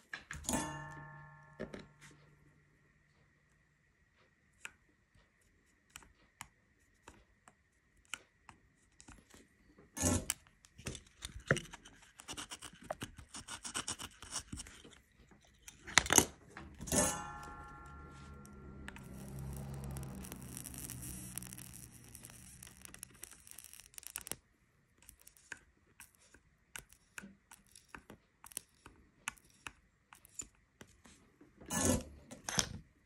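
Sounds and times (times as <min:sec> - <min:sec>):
faint high whine: 0:16.8 - 0:24.0.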